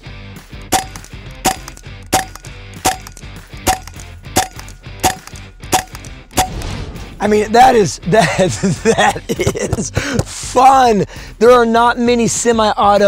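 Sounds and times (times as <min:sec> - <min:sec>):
gun mechanical action: 0:00.8 - 0:06.7
air rifle shots: 0:00.8 - 0:06.8.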